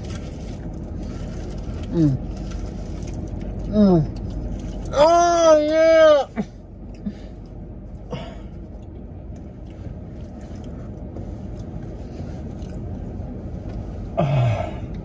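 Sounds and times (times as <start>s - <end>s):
car cabin rumble: 0.0s - 15.0s
man's drawn-out exclamation: 4.9s - 6.4s.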